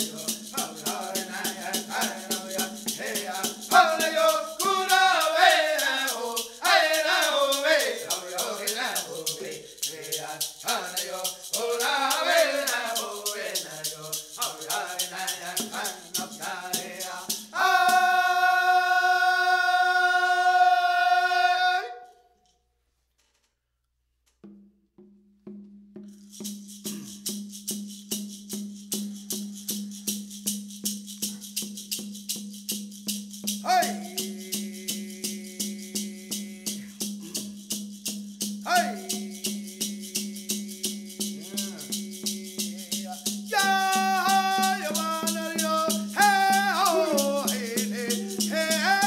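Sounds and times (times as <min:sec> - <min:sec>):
shaken rattle beat: 0:00.0 - 0:21.2, 0:25.4 - 0:49.0
women singing: 0:00.0 - 0:22.0, 0:33.7 - 0:36.8, 0:38.7 - 0:49.0.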